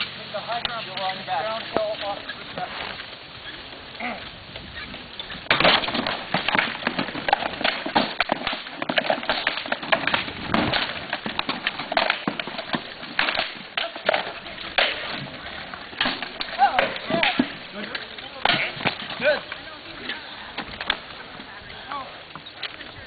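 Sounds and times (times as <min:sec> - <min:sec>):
weapons knocking on shields: 0:05.5 - 0:15.3.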